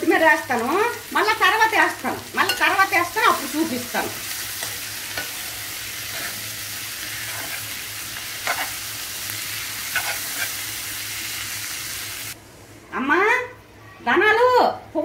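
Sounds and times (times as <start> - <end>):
prawns sizzling in oil: 0.0 - 12.4
metal spoon scraping and clinking: 8.4 - 8.8, 9.9 - 10.6.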